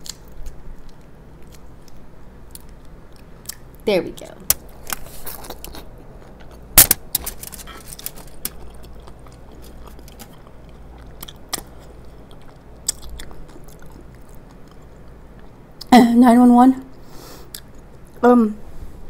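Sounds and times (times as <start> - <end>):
chewing with wet mouth sounds: 4.9 - 15.9, 16.9 - 18.2.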